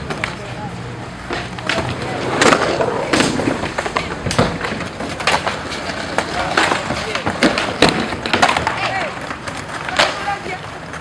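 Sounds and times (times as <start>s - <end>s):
skateboards cracking on concrete: 0.0s - 11.0s.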